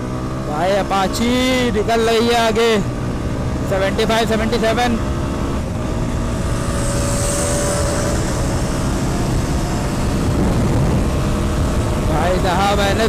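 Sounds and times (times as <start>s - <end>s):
motorcycle engine at full throttle: 0.0s - 13.0s
wind buffeting microphone: 5.0s - 12.6s.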